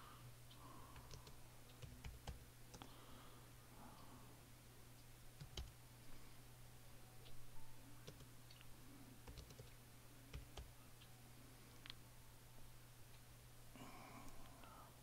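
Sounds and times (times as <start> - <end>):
steady low hum: 0.0 - 15.0
computer keyboard keystrokes: 1.0 - 2.9, 5.4 - 5.7, 8.0 - 8.6, 9.2 - 10.7.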